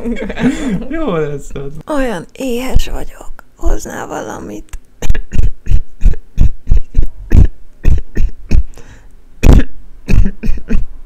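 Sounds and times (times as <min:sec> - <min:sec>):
person coughing: 0:09.4 - 0:10.9.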